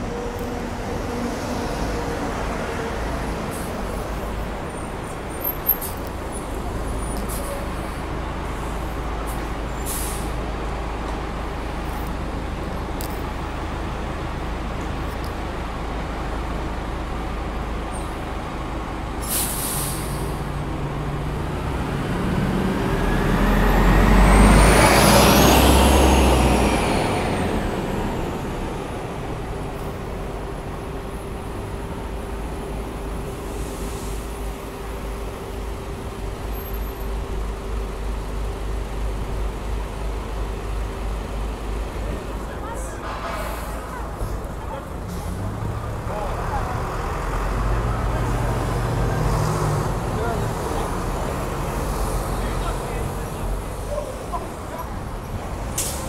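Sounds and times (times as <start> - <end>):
bus engine pulling away: 0.0 - 56.0
street traffic: 0.0 - 56.0
air brakes hissing: 9.3 - 10.4, 19.2 - 20.5, 55.8 - 56.0.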